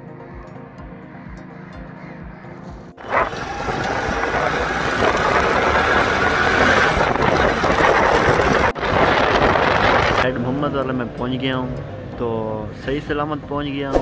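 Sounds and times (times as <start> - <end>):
motorcycle engine running: 0.8 - 11.1
wind rushing over microphone: 3.0 - 10.8.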